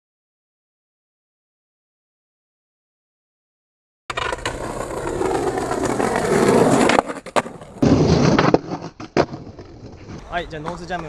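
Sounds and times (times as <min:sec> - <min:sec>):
skateboard wheels rolling on stone: 0:04.1 - 0:11.0.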